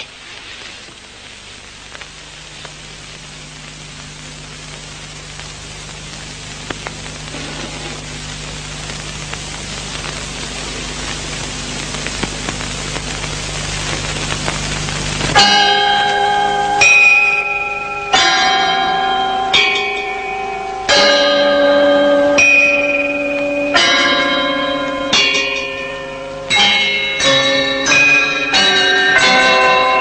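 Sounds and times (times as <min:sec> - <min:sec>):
faint crackles: 0:00.0 - 0:18.6
film soundtrack hiss: 0:00.0 - 0:30.0
low steady hum: 0:00.0 - 0:30.0.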